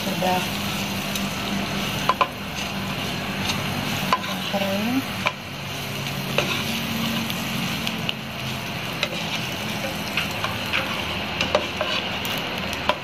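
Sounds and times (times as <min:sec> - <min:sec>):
bread sizzling in butter: 0:00.0 - 0:13.0
spatula scraping a pan: 0:02.0 - 0:05.4, 0:06.0 - 0:07.8, 0:08.4 - 0:13.0.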